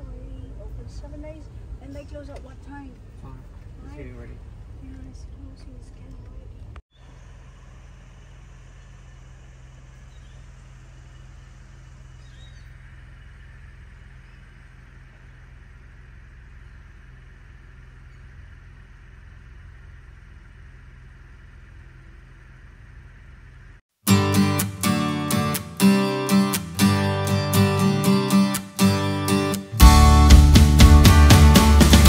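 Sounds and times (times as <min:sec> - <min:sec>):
steady low rumble: 0:00.0 - 0:23.8
faint bird chirps: 0:06.9 - 0:19.4.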